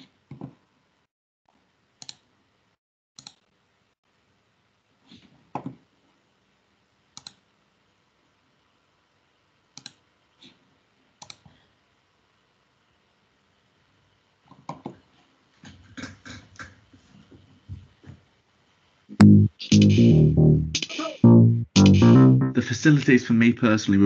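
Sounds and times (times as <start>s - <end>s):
faint room noise: 0.0s - 24.0s
computer mouse clicking: 2.0s - 2.2s, 3.2s - 3.4s, 7.2s - 7.4s, 9.8s - 10.0s, 11.2s - 11.5s.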